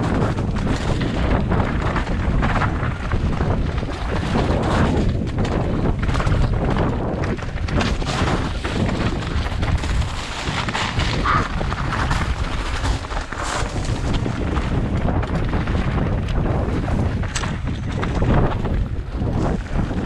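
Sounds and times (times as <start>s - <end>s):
mountain bike rattling and knocking: 0.0s - 20.0s
wind buffeting microphone: 0.0s - 20.0s.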